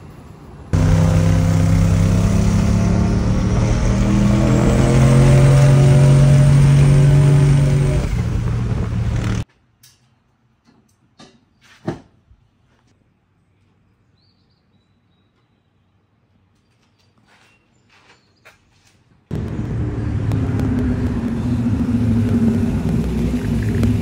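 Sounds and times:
truck engine under load: 0.8 - 9.4, 19.3 - 24.0.

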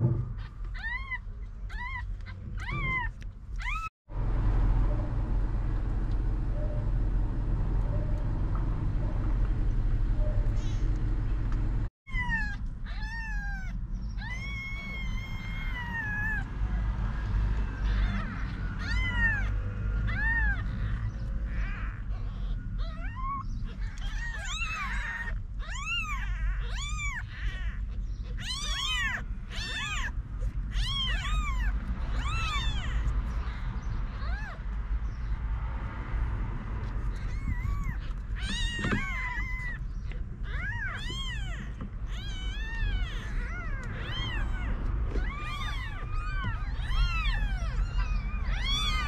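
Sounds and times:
kittens mewing: 0.0 - 3.9, 12.1 - 34.7, 36.8 - 49.0.

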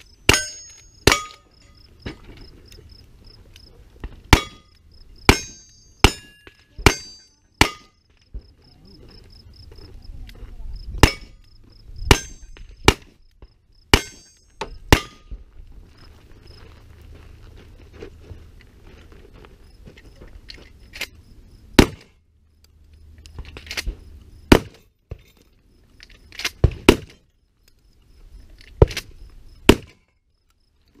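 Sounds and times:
gunshots: 21.8 - 22.1.

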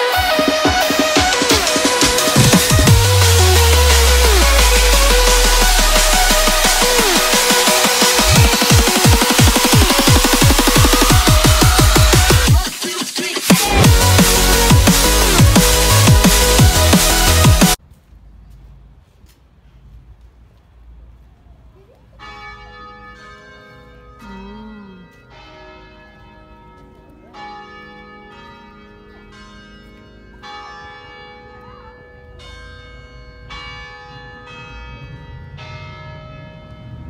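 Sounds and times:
church bell ringing: 0.0 - 12.3, 22.2 - 37.0.

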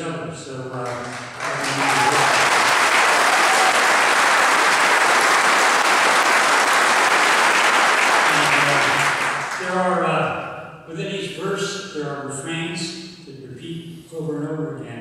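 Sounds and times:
audience applauding: 0.7 - 9.8.

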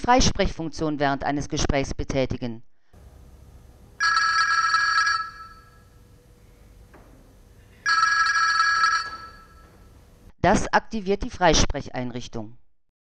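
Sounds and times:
mobile phone ringing: 4.0 - 6.0, 7.8 - 9.9.

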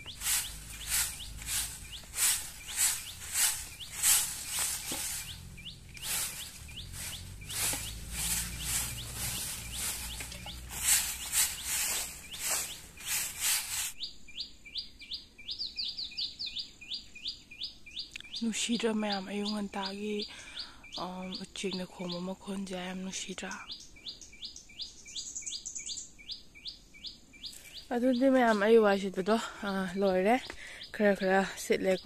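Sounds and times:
broom sweeping dry ground: 0.0 - 14.0
birds chirping: 0.0 - 32.0.

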